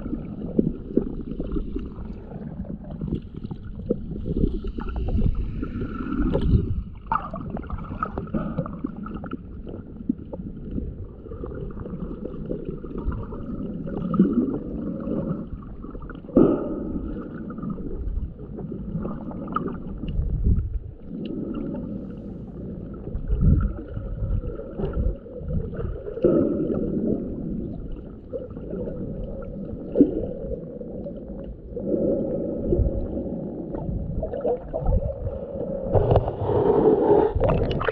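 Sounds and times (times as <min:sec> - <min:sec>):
muffled underwater sloshing: 0:00.0 - 0:37.9.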